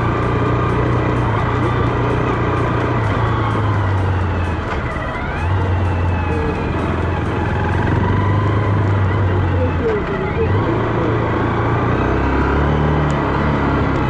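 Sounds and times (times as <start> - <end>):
motorcycle engine cruising: 0.0 - 14.0.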